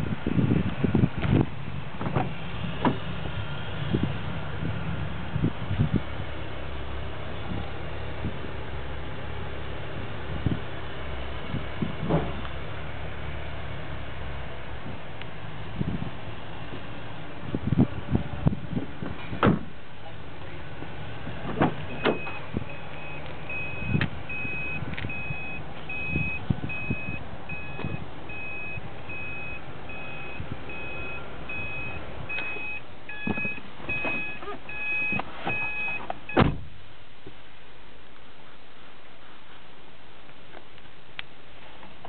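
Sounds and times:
knocks and thumps of car trim: 2.0s - 3.0s, 19.0s - 19.7s
car warning chime beeping: 21.9s - 36.4s
lower beep: 21.9s - 36.4s.

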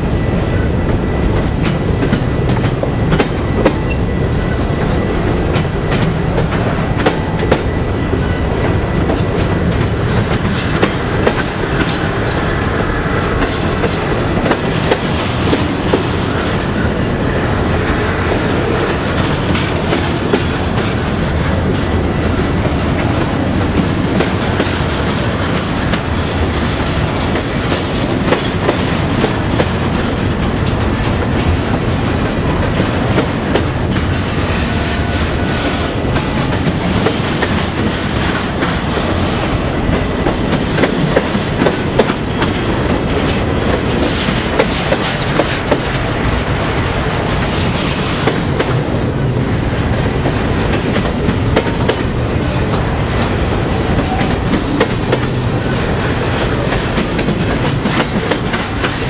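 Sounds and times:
freight train wheels rumbling: 0.0s - 59.0s.

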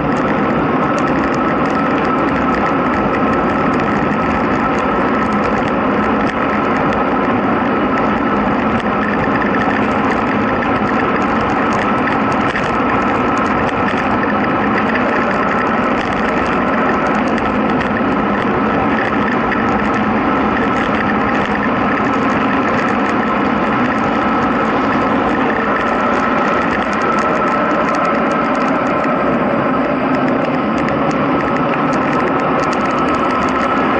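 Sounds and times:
fine crackling rattle: 0.0s - 33.9s
road rumble: 0.0s - 33.9s
wind rushing over microphone: 0.0s - 33.9s.

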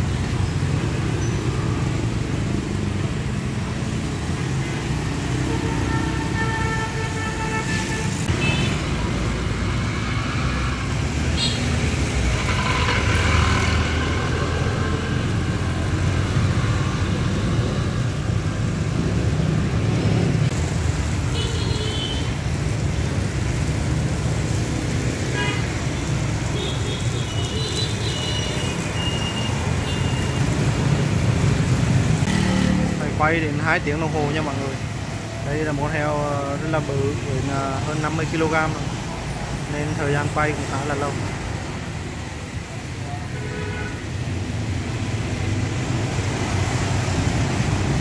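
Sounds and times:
road traffic rumble: 0.0s - 48.0s.

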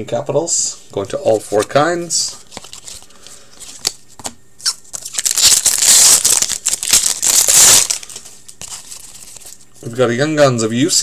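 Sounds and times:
wrapper tearing and crinkling: 4.6s - 9.6s.

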